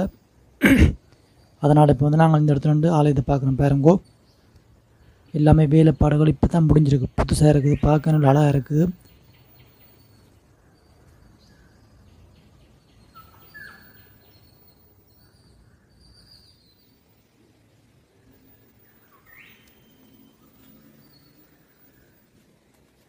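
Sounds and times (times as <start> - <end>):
bird chirps: 3.4 - 22.8
sweeping bird call: 7.5 - 23.0.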